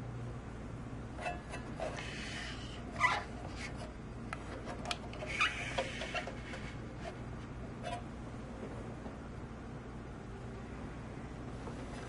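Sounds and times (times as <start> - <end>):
metal box scraping on wooden desk: 4.5 - 7.2.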